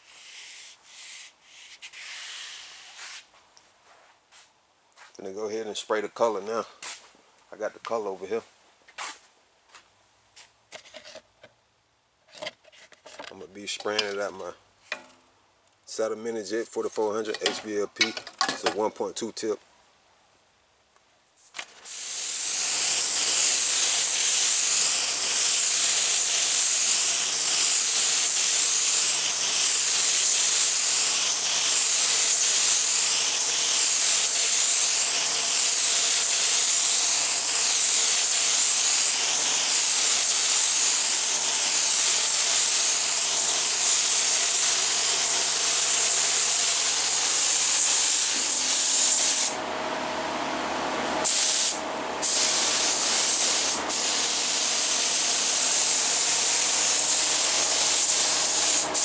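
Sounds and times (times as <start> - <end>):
spray gun air hiss: 21.8 - 49.6, 51.2 - 59.0.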